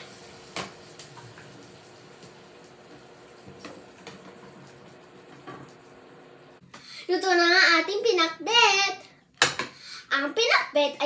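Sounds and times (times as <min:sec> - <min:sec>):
vegetables simmering in a wok: 0:00.0 - 0:06.6.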